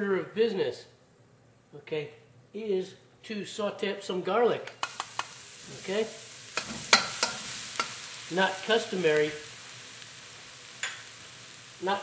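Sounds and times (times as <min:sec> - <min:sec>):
spatula clicking against pan: 0:04.7 - 0:05.3
garlic sizzling in oil: 0:04.7 - 0:12.0.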